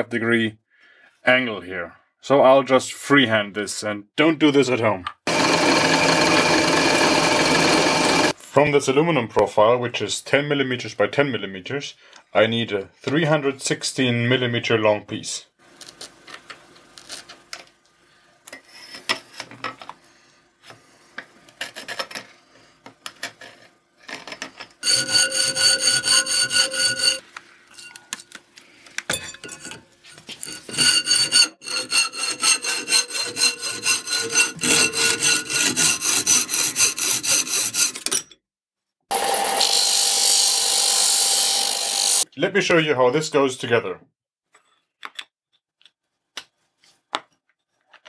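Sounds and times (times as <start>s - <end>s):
hacksaw cutting metal: 5.3s - 8.4s, 24.8s - 27.2s, 30.4s - 38.2s, 39.1s - 42.2s.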